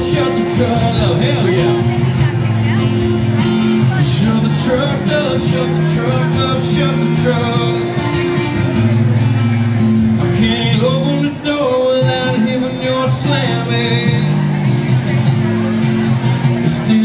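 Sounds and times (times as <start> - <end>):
man singing: 0.0 - 2.5, 3.6 - 8.6, 10.2 - 14.4, 16.5 - 17.0
acoustic guitars strummed: 0.0 - 17.0.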